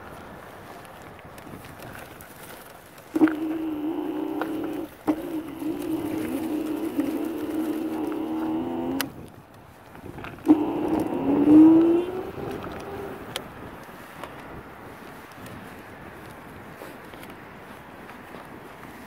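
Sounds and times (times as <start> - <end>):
electric scooter motors whining: 1.8 - 16.4.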